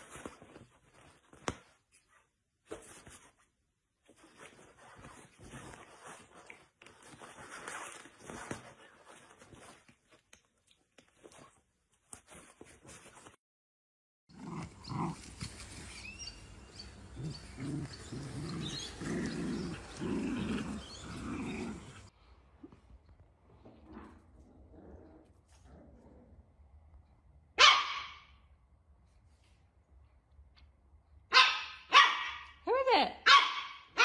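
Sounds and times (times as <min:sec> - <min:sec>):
puppies growling: 0:14.3 - 0:22.1, 0:23.5 - 0:26.7.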